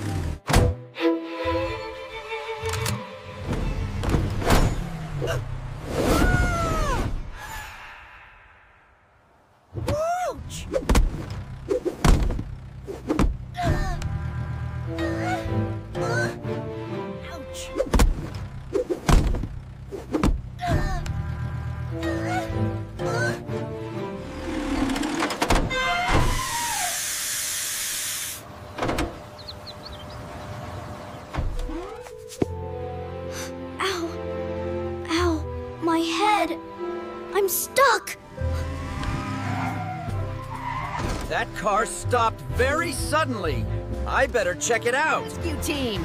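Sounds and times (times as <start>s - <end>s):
music: 0.0s - 4.4s, 14.0s - 18.1s, 20.8s - 25.4s, 31.6s - 46.0s
loud hiss: 26.4s - 28.5s.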